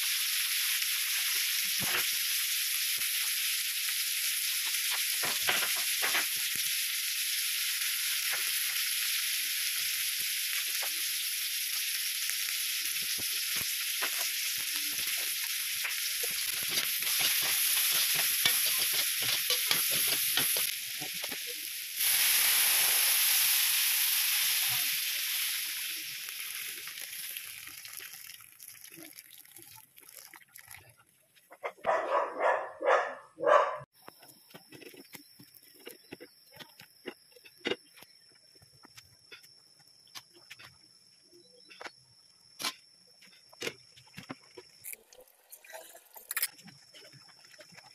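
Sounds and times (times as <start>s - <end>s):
broth hissing in hot wok: 0.0s - 28.3s
food sizzling in a wok: 0.0s - 29.1s.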